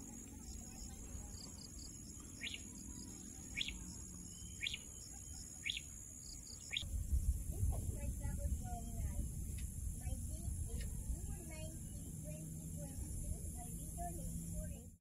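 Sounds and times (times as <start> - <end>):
bird chirping: 0.0 - 6.9
low rumble: 6.8 - 14.8.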